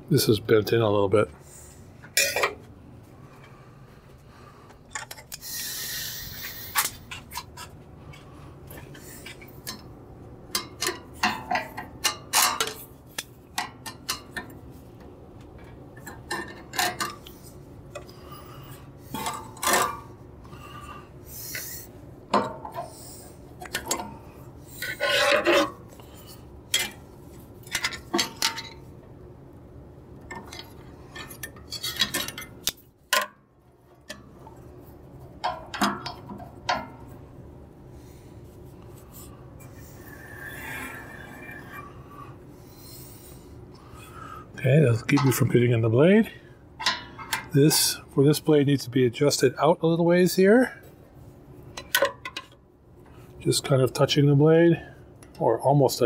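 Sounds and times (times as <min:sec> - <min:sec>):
metal tools clinking and scraping: 0:02.1 - 0:02.6, 0:10.5 - 0:14.6, 0:15.7 - 0:20.2, 0:21.4 - 0:28.9, 0:30.3 - 0:33.3, 0:44.9 - 0:48.0
hiss: 0:05.4 - 0:06.9, 0:21.3 - 0:21.9.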